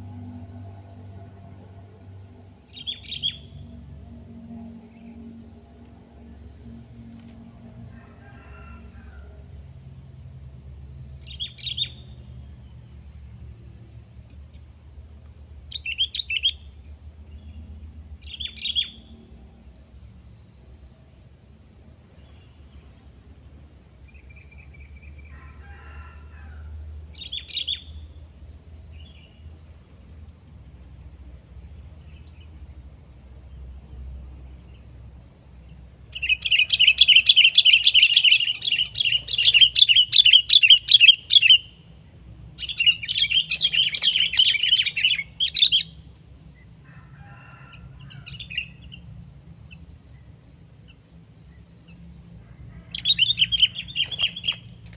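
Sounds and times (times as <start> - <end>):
bulbul chattering song: 2.7 - 3.7, 11.2 - 12.2, 36.0 - 46.1, 52.8 - 54.9.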